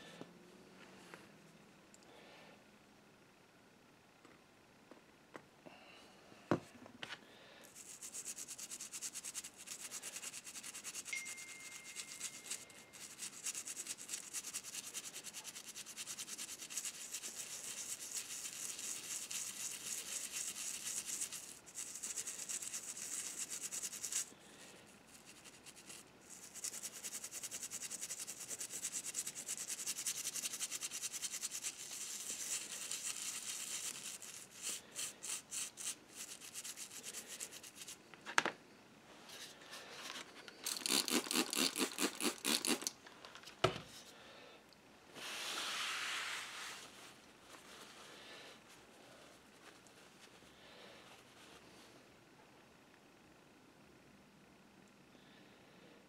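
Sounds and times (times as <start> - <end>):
toothbrush scrubbing metal: 7.7 - 24.3, 25.1 - 38.0, 40.6 - 42.9.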